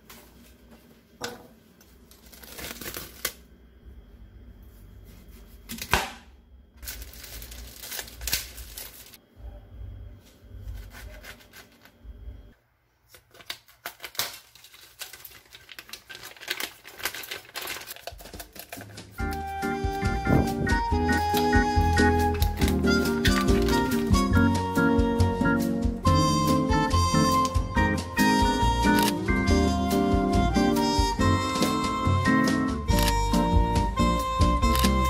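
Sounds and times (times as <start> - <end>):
plastic package crinkling: 2.0 - 3.4, 6.8 - 9.2, 13.1 - 19.4, 22.2 - 24.2.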